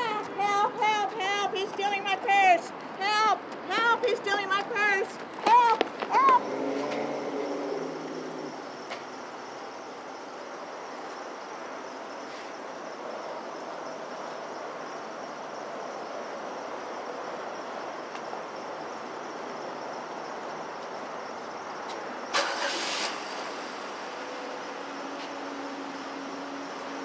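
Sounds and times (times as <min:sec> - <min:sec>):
car traffic noise: 0:00.0 - 0:27.0.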